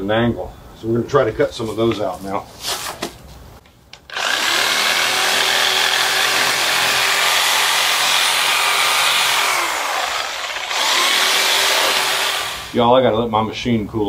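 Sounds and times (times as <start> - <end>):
reciprocating saw cutting roots: 4.1 - 12.8.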